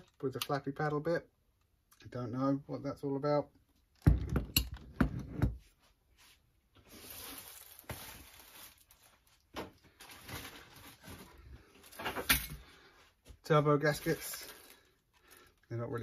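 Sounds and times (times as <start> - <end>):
plastic packaging rustling: 6.8 - 12.9, 13.5 - 16.0.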